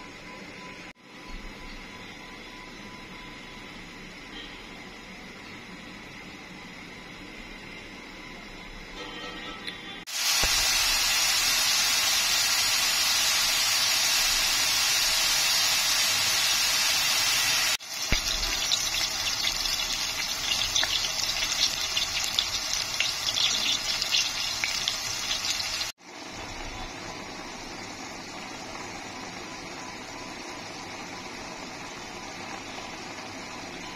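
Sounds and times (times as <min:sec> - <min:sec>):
loud rushing hiss: 0:10.1 - 0:17.8
sauce simmering hiss: 0:10.1 - 0:33.8
food sizzling in oil: 0:10.1 - 0:33.9.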